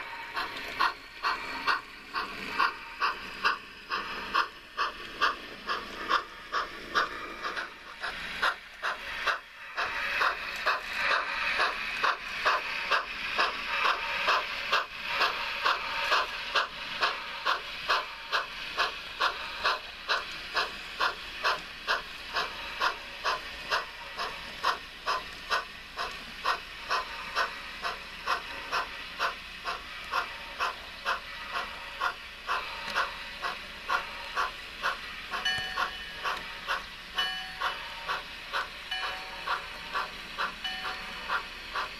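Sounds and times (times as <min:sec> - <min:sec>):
continuous steam hiss: 0:00.0 - 0:41.9
steam locomotive chuffs: 0:00.0 - 0:41.9.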